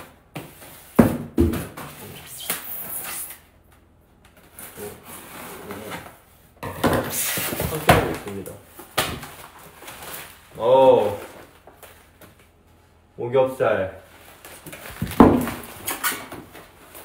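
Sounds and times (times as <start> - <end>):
knocks on cardboard box: 1.0 - 1.8, 15.0 - 15.7.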